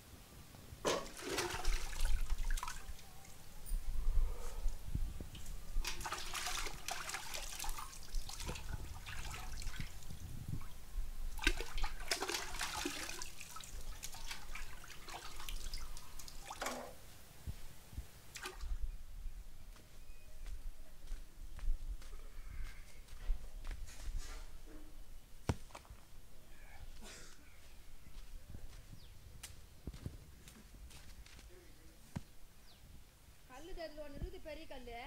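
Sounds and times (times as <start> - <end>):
water splashing in a steel pot: 0.9 - 3.0, 5.8 - 10.1, 11.3 - 16.8.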